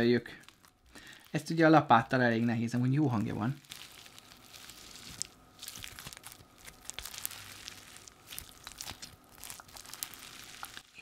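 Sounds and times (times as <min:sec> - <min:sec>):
slime crackling and popping: 0:00.0 - 0:01.6, 0:03.2 - 0:11.0.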